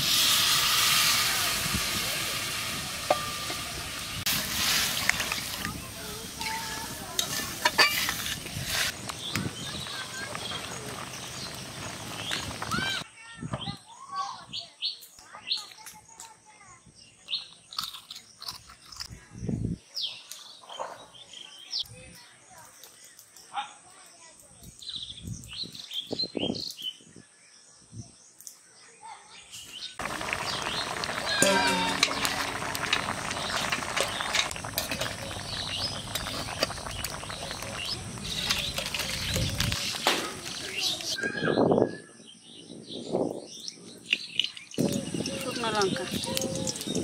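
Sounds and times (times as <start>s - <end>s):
stew bubbling with pops: 1.6s - 5.9s, 30.0s - 41.2s, 44.0s - 47.0s
small birds chirping: 3.9s - 47.0s
dog crunching a snack: 17.7s - 19.1s.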